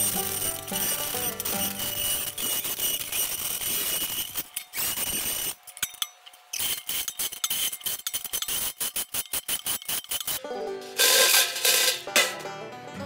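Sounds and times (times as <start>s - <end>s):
steel pails clanking: 10.0s - 12.7s.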